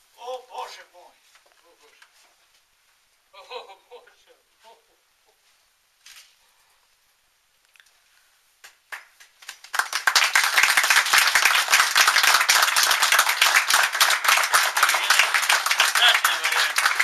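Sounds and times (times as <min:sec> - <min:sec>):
audience applause: 0:08.9 - 0:17.0.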